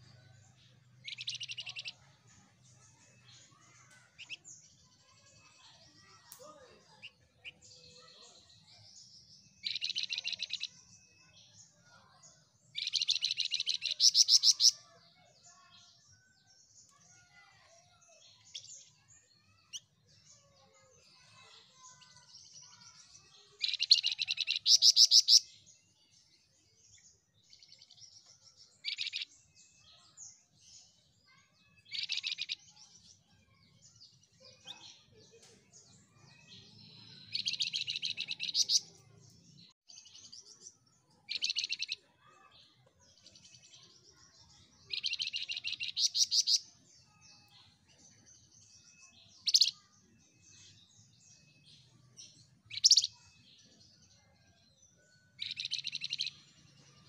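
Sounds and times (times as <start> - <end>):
songbird trilling: 1.0 - 1.9, 52.7 - 53.2
songbird twittering: 1.0 - 2.0, 52.7 - 53.2.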